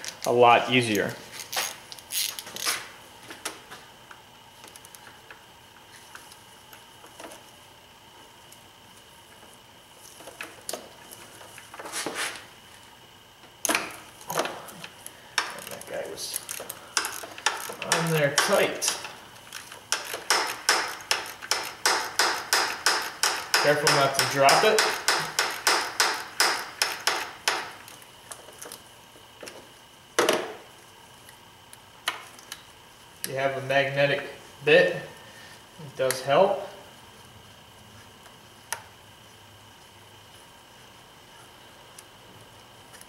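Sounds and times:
ratchet clicking: 16.3 - 27.7.

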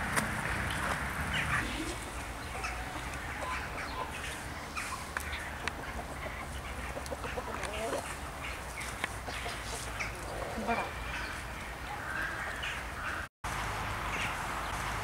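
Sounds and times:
fowl clucking and calling: 1.3 - 13.3.

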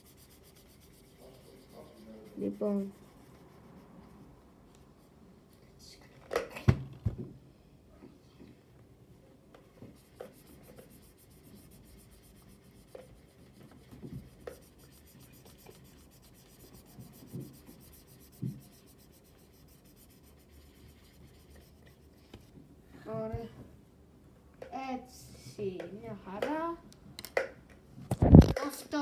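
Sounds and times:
marker rubbing on paper: 0.0 - 4.3, 9.8 - 22.5.

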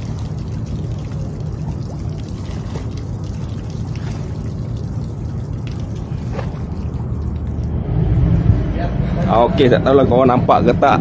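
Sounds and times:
water washing against ship hull: 0.0 - 8.7
steady low rumble: 0.0 - 11.0.

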